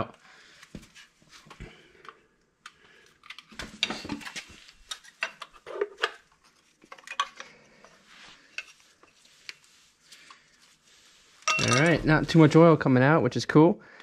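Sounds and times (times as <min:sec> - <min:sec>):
pry tool clinking and scraping metal: 0:11.4 - 0:12.1.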